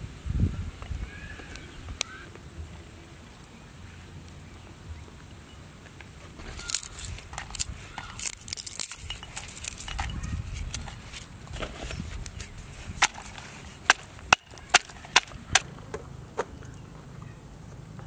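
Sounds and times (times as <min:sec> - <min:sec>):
garlic cloves dropping into mortar: 0:06.4 - 0:11.3.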